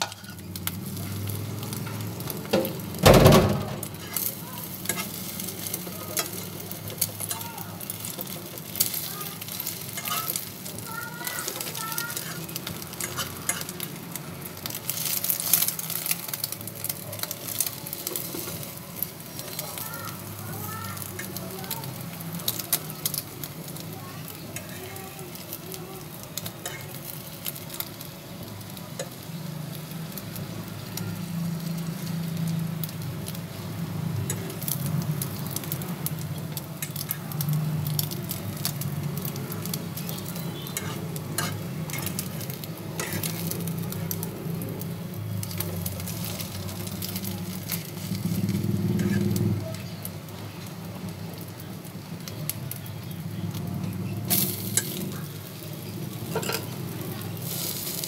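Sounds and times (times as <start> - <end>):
metal spoon scraping pan: 0.0 - 0.6, 3.8 - 7.3, 8.0 - 10.6, 38.6 - 44.2, 56.2 - 56.8
bread sizzling in frying pan: 0.0 - 58.0.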